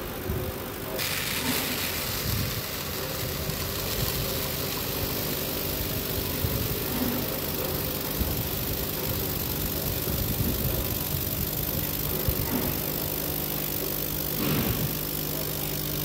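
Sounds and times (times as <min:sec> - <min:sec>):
vibratory feeder humming: 0:00.0 - 0:16.0
grain streaming into bin: 0:01.0 - 0:07.3.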